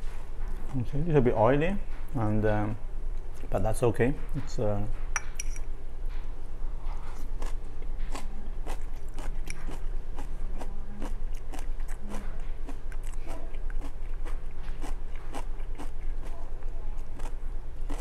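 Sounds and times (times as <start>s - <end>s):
steady low hum: 0.0s - 18.0s
person chewing food: 7.0s - 18.0s.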